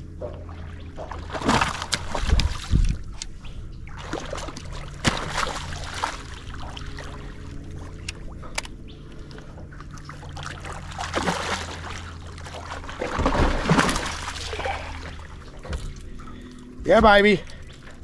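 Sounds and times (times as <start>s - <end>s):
steady low hum: 0.0s - 18.0s
fish thrashing and splashing: 0.4s - 3.2s, 3.9s - 8.0s, 9.7s - 16.5s.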